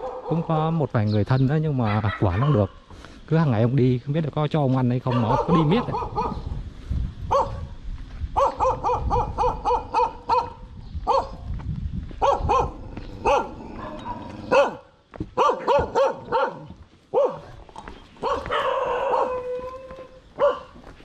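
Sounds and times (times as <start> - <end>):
dog barking: 0.0 - 0.5, 1.8 - 2.8, 5.0 - 6.5, 7.3 - 7.7, 8.4 - 11.4, 12.2 - 17.6, 18.2 - 19.8, 20.4 - 20.8.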